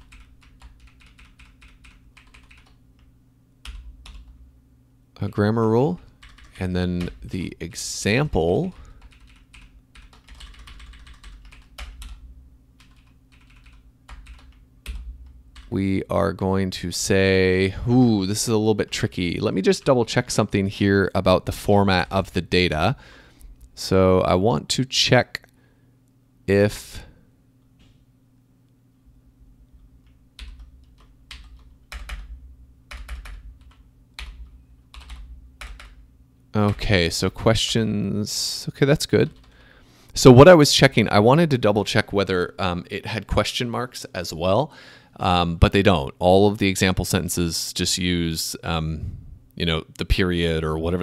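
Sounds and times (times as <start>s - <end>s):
computer keyboard key presses: 0.0s - 2.8s, 32.9s - 36.0s
faint low hum: 0.0s - 51.0s.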